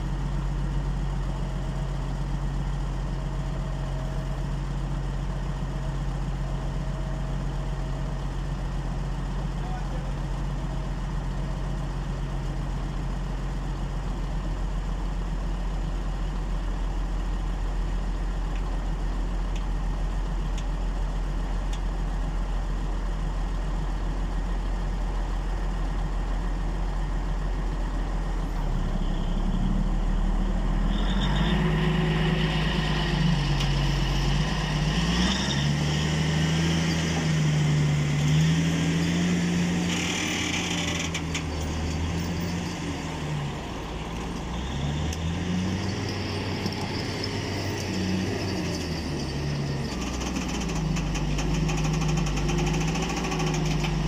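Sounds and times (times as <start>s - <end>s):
diesel engines idling: 0.0s - 54.0s
wheel loader engine revving: 28.8s - 54.0s.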